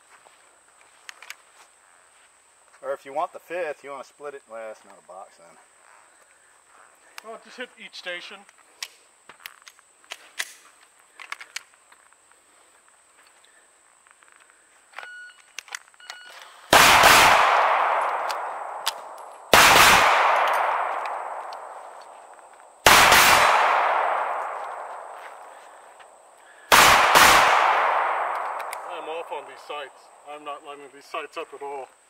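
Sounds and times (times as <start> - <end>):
pistol shots echoing: 16.7 - 25.6, 26.6 - 29.9.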